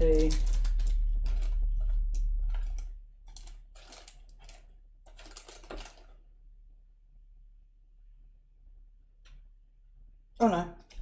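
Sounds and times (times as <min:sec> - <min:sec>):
low hum: 0:00.0 - 0:03.7
plastic bags crinkling and clicking: 0:00.0 - 0:06.3.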